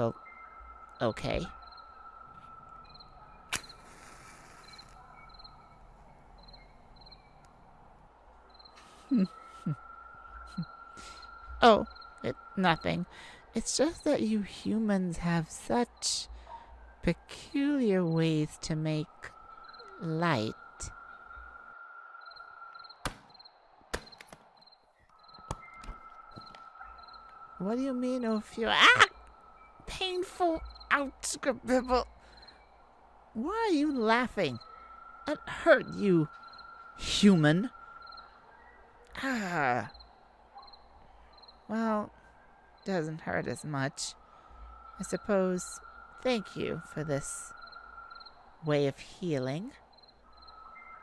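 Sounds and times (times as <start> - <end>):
crickets chirping: 0.0 - 51.0
match strike and flame hiss: 3.5 - 5.0.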